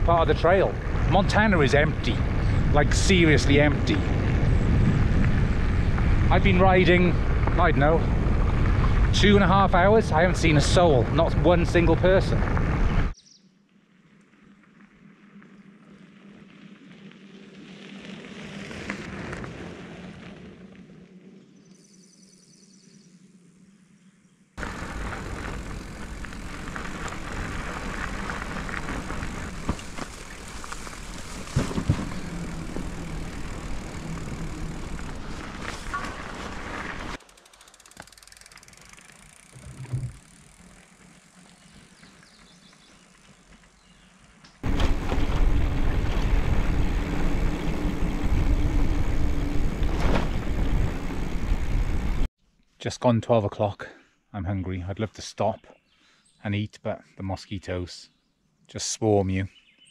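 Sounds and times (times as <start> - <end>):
bicycle rolling past: 0.0 - 13.2, 13.8 - 22.0, 24.6 - 52.3
bicycle tyre noise and rattle: 0.0 - 13.2, 13.8 - 21.6, 24.6 - 52.3
tyre rumble on gravel: 24.6 - 37.2, 44.6 - 52.2.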